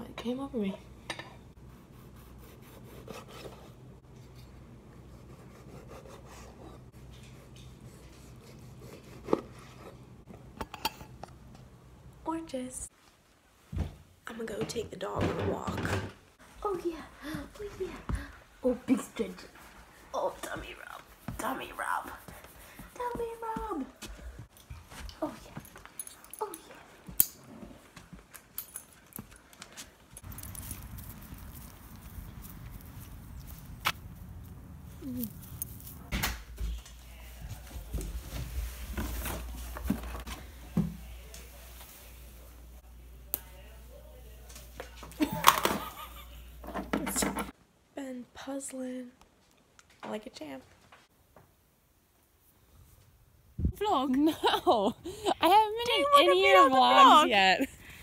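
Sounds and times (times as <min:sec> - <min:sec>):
knife sawing through orange: 0:01.9 - 0:03.7, 0:05.1 - 0:06.9, 0:08.0 - 0:09.7
dog harness jingling and clicking: 0:28.5 - 0:31.9.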